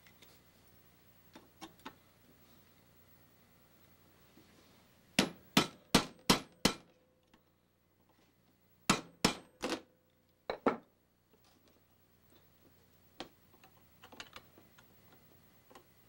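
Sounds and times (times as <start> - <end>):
hammer striking a metal punch: 5.2 - 6.9, 8.9 - 9.6.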